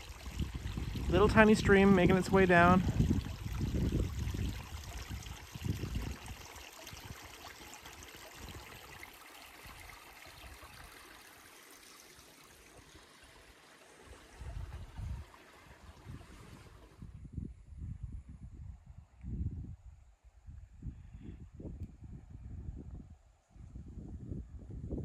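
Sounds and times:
wind gusts on microphone: 0:00.0 - 0:07.3, 0:14.3 - 0:25.0
stream trickling over rocks: 0:00.0 - 0:17.1.

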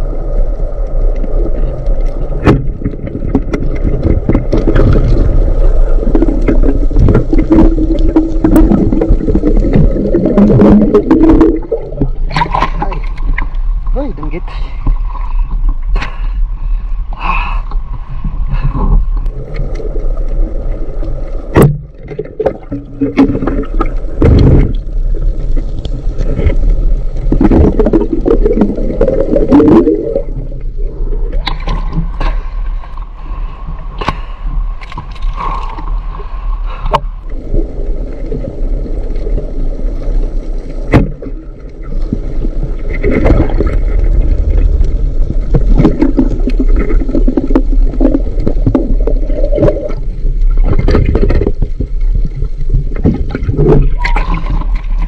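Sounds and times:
water sloshing and gurgling: 0:00.0 - 0:55.0.

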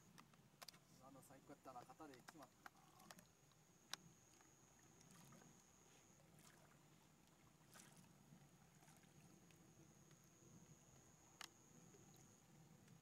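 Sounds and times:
faint click: 0:10.9 - 0:12.2.

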